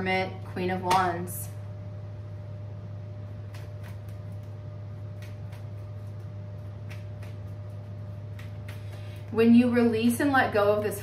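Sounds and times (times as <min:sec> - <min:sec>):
low hum: 0:00.0 - 0:11.0
cards being shuffled: 0:03.5 - 0:09.4.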